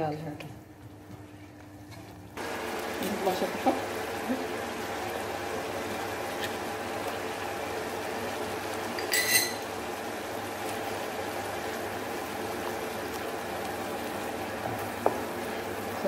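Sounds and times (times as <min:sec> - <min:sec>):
sauce simmering in a frying pan: 0:02.4 - 0:16.0
spoon clinking against a pan: 0:09.0 - 0:09.7.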